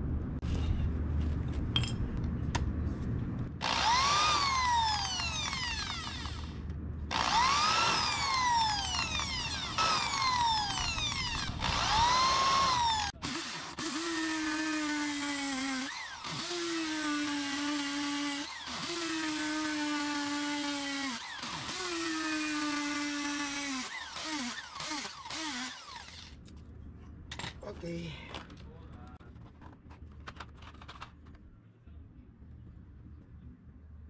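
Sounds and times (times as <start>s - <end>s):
electric drill boring into concrete: 3.6s - 26.4s.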